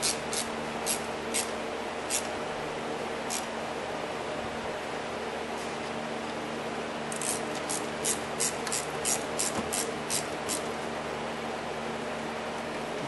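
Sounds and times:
ratchet wrench clicking: 0.0 - 1.5, 3.3 - 3.5, 7.1 - 10.6
steady background hum: 0.0 - 13.0.

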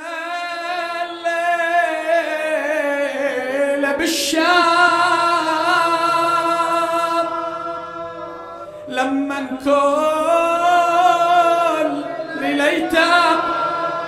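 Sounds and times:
person singing wordless long notes: 0.0 - 14.0.

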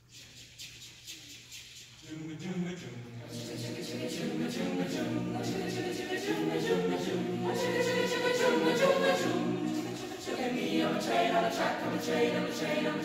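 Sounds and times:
choir singing a cappella: 2.0 - 13.0.

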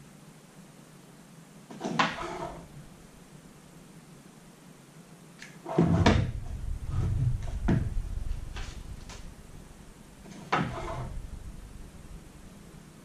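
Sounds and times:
dull thuds: 5.7 - 9.5.

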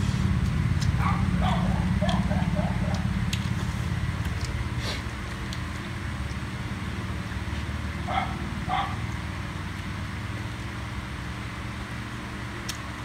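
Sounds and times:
steady low hum: 0.0 - 13.0
dog barks: 1.0 - 3.1, 8.1 - 9.0.

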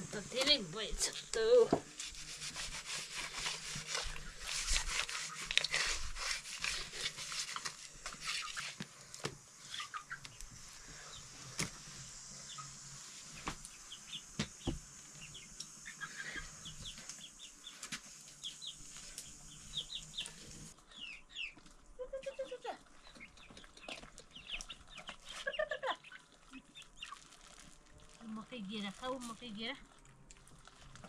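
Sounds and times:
chickens clucking and chirping: 9.6 - 11.4, 12.3 - 27.4.

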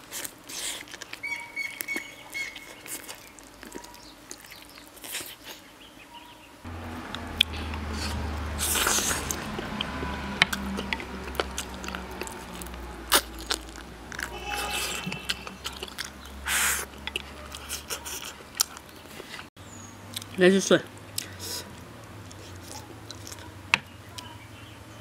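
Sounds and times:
person chewing food: 0.0 - 5.7, 7.1 - 23.6
breathy bursts: 14.0 - 17.0, 21.2 - 21.8.

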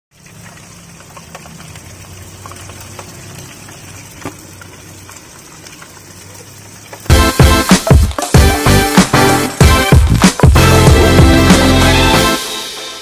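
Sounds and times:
oil sizzling while deep-frying: 0.1 - 13.0.

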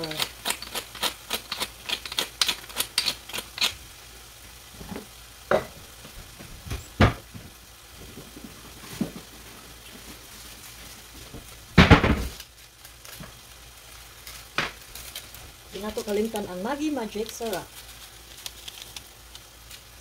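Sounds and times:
pepper mill grinding: 0.0 - 3.8, 13.8 - 20.0
food sizzling in a pan: 0.0 - 20.0.

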